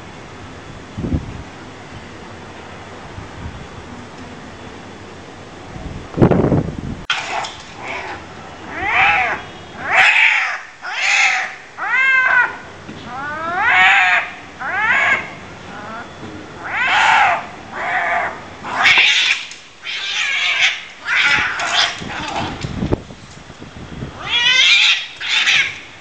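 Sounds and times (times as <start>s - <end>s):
cats yowling and screeching: 7.1s - 22.6s, 24.2s - 25.9s.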